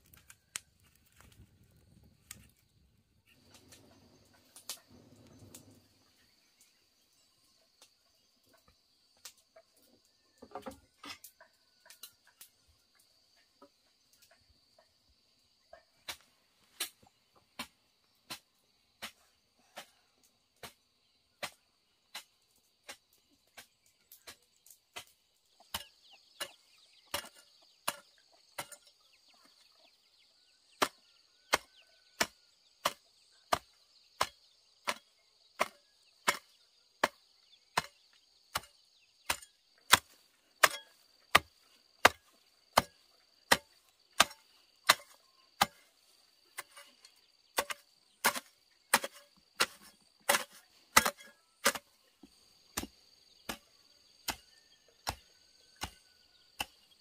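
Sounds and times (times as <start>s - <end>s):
insects buzzing: 10.6s - 57.0s
blade chopping bamboo: 30.8s - 37.2s, 37.8s - 38.7s, 39.3s - 45.9s, 47.6s - 51.9s, 52.8s - 57.0s.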